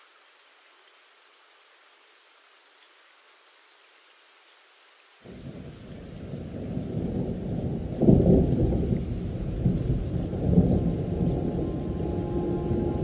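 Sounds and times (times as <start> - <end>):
rain: 0.0 - 13.0
thunder rumbling: 5.3 - 13.0.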